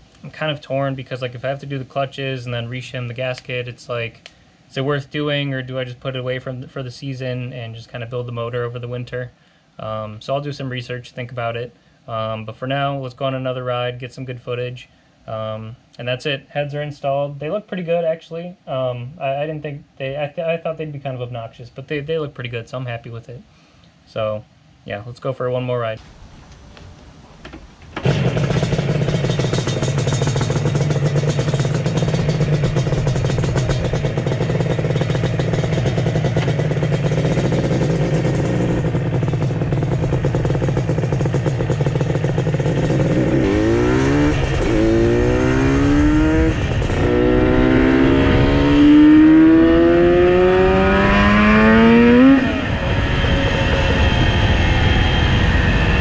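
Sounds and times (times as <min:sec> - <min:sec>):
two-stroke motorcycle engine revving: 0:28.0 - 0:56.0.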